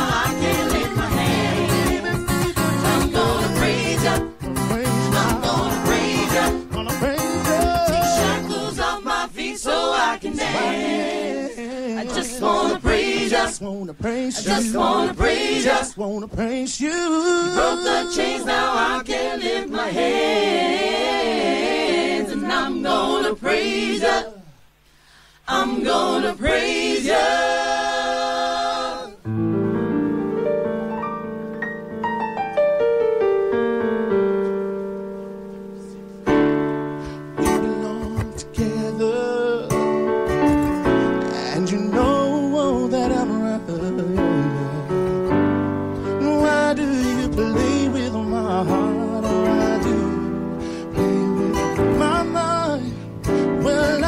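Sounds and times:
vocal group singing in harmony: 0.0s - 29.3s, 41.0s - 45.4s, 46.0s - 54.0s
keyboard chords: 29.2s - 38.2s, 39.8s - 46.7s.

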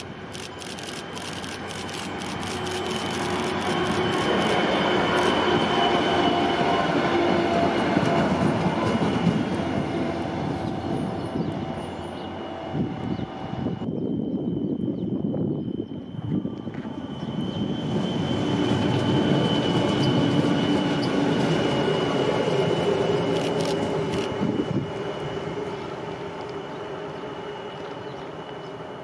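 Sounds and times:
high whine: 0.0s - 7.0s
diesel locomotive passing: 0.0s - 29.0s.

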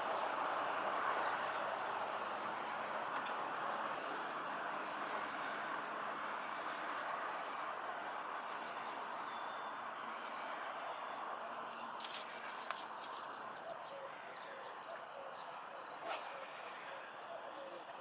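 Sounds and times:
small birds chirping: 8.4s - 18.0s.

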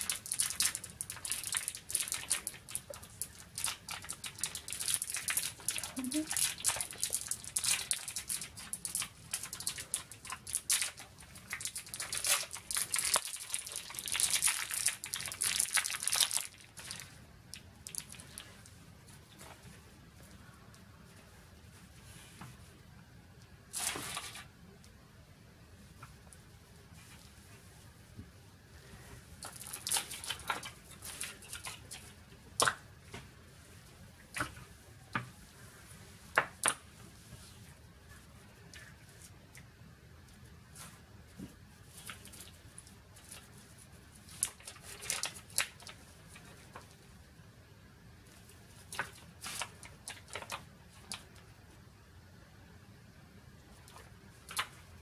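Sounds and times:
plastic bag crinkling: 3.7s - 17.2s.

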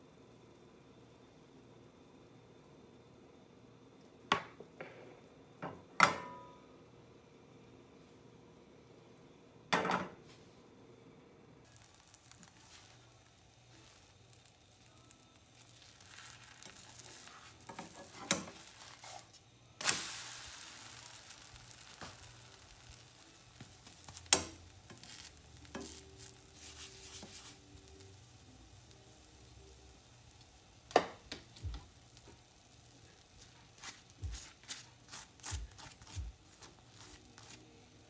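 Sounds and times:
batter sizzling in a frying pan: 11.6s - 38.0s
pancake flipped onto hot pan: 11.7s - 27.7s, 29.9s - 37.6s
spatula scraping a pan: 15.6s - 27.6s.

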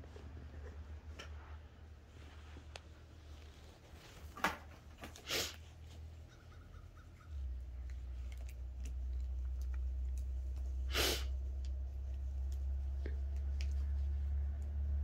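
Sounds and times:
low steady hum: 0.0s - 15.0s
sharp snort of breath: 5.2s - 5.6s, 10.9s - 11.3s.

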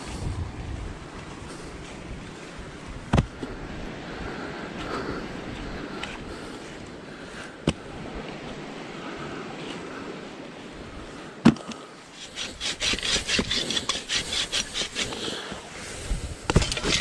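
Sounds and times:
hand saw cutting wood: 12.2s - 15.5s, 16.5s - 17.0s.

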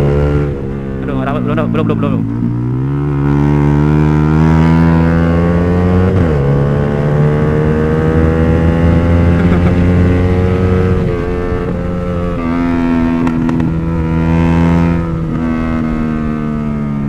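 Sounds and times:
motorcycle engine accelerating hard: 0.0s - 17.0s.

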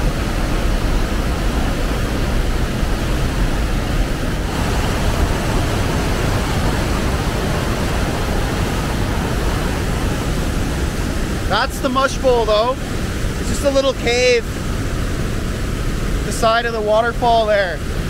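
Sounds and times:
waterfall rushing: 0.0s - 18.0s.

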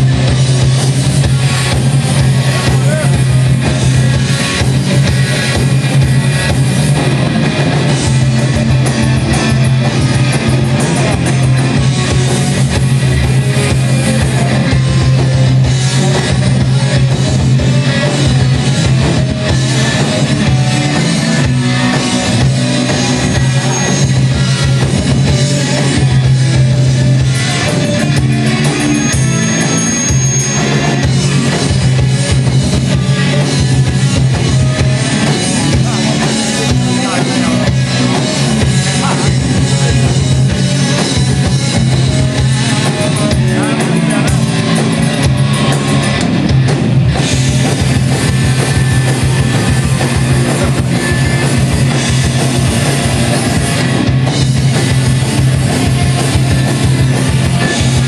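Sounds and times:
heavy metal band playing live: 0.0s - 58.0s.

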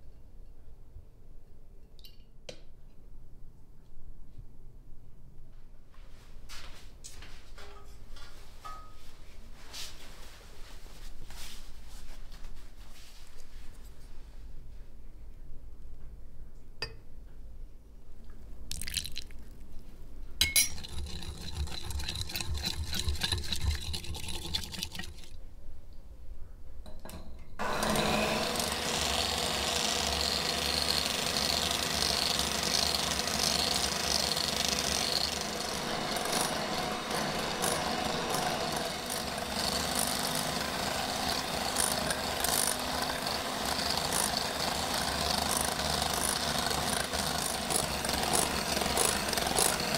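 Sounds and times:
glass clinks: 8.7s - 9.0s, 20.4s - 20.9s
oil pouring into glass: 18.7s - 19.4s, 20.6s - 25.3s.

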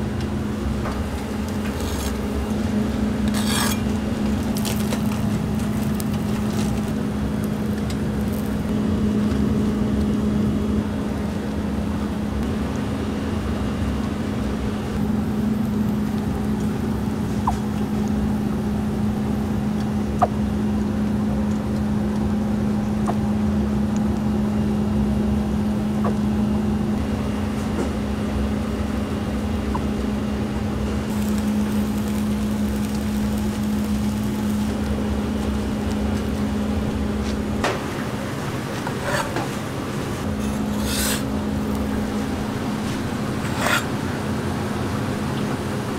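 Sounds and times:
kitchen machinery humming: 0.0s - 45.9s.

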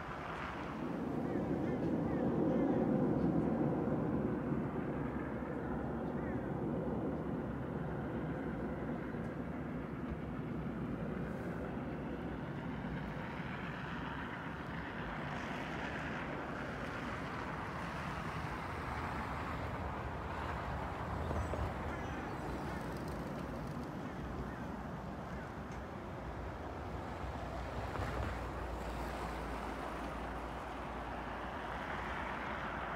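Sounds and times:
cars driving by on snowy road: 26.5s - 32.9s.

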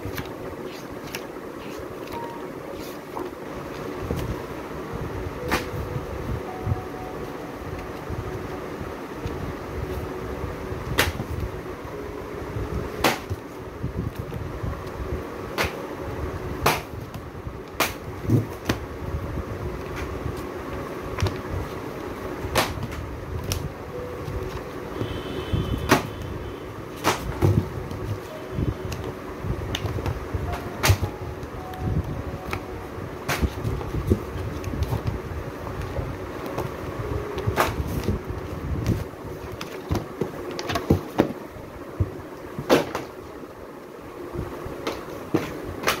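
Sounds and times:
pages flipping: 0.0s - 4.3s.

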